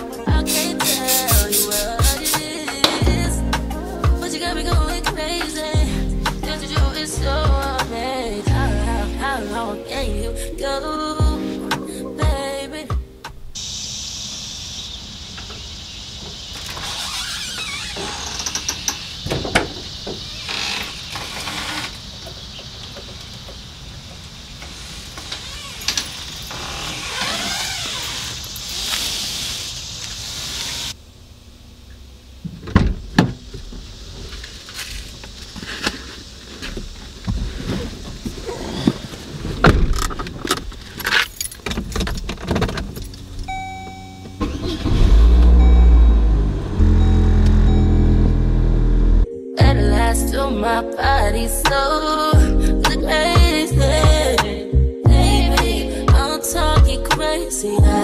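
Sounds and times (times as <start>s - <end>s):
squeaking door hinge: 16.5s - 22.4s, 25.3s - 28.4s
car engine starting and running: 38.8s - 49.3s
keys jangling: 40.9s - 43.3s
dashboard chime: 43.5s - 44.4s, 45.6s - 48.4s.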